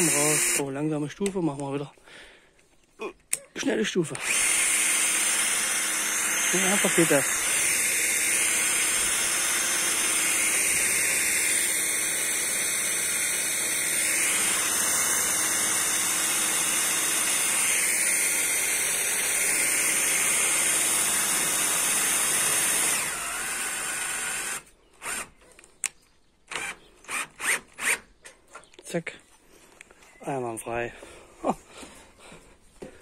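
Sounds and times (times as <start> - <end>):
cordless drill running: 0.0 - 0.7, 4.1 - 25.3, 26.5 - 28.1.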